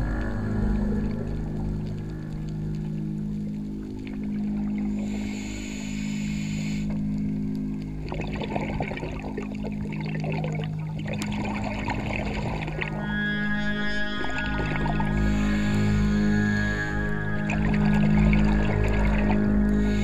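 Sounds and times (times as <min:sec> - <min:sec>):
ambient music drone: 0:00.0 - 0:20.0
gurgling exhaled bubbles: 0:07.9 - 0:20.0
hiss of inhaled air: 0:15.1 - 0:17.6.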